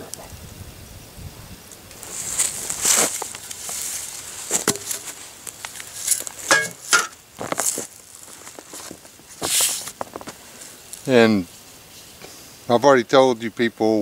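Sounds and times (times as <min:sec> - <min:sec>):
movement in dry leaves: 0:01.5 - 0:12.2.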